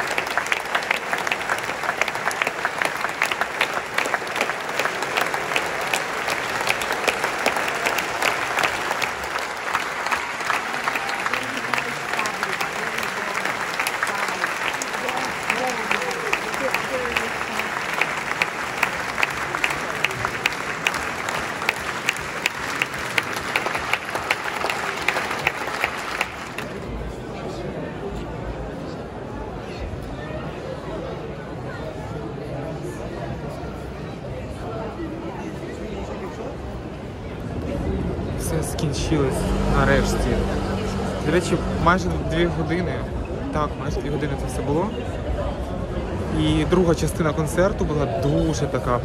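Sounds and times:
nearby hands clapping steadily: 0.0 - 26.8
audience applauding: 0.0 - 27.1.

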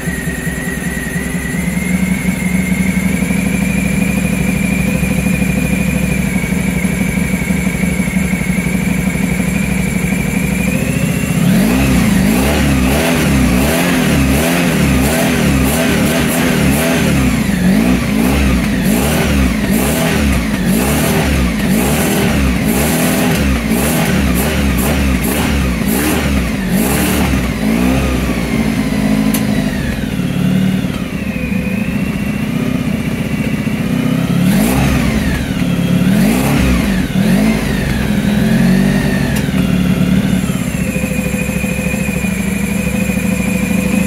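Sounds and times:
engine crackles: 0.0 - 44.0
motorcycle engine revving: 0.0 - 44.0.

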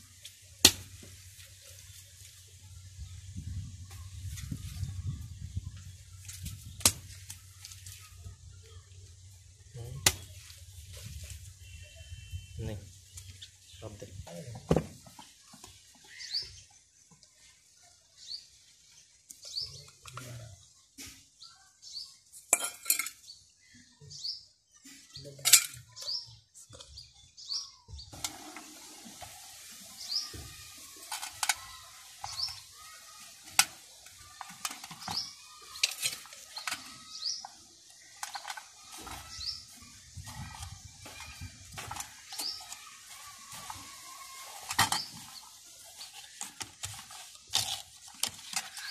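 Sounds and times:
bird chirping: 15.2 - 22.4, 34.2 - 46.4
metal trap clinking and knocking: 22.6 - 23.2.

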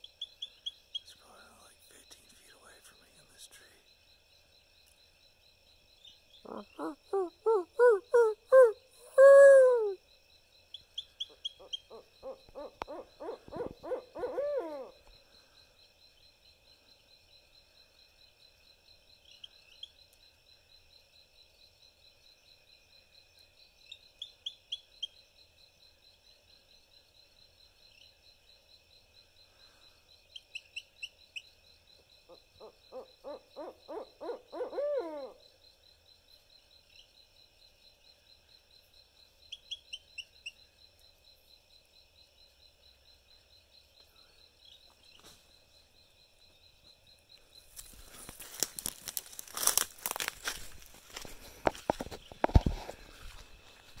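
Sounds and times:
high insect trill: 0.0 - 54.0
owl hooting: 6.4 - 10.0, 11.2 - 15.1, 32.3 - 35.4.

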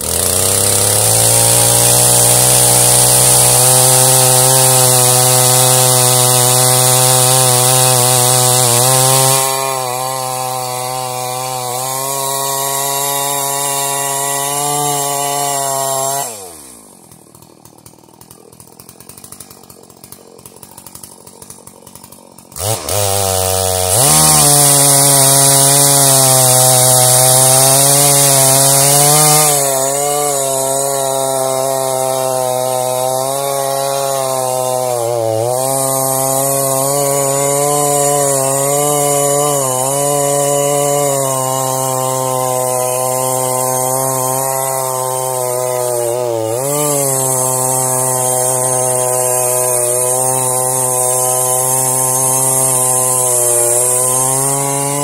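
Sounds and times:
chainsaw cutting log: 0.0 - 55.0
chainsaw idling: 0.0 - 55.0.

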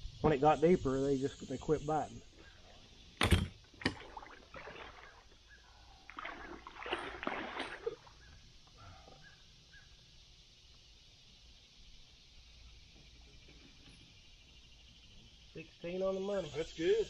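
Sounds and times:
water splashing around kayak: 3.2 - 8.4.

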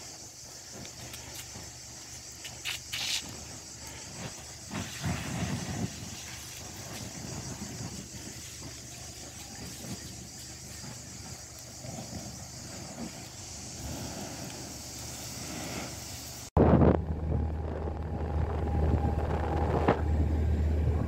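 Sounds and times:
fire hose spraying water: 0.0 - 16.5
low rumbling: 16.5 - 21.0.

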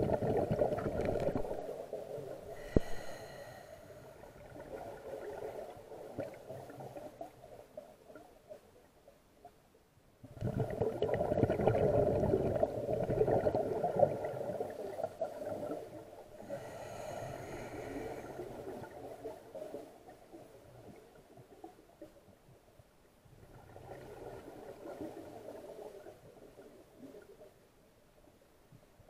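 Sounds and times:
diver exhaling bubbles: 0.0 - 1.7, 10.3 - 14.6.

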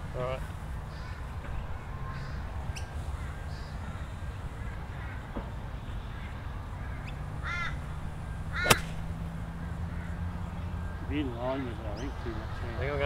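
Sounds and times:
low wind rumble: 0.0 - 13.0
bird calling: 6.1 - 11.2
golf club striking ball: 8.6 - 9.3.

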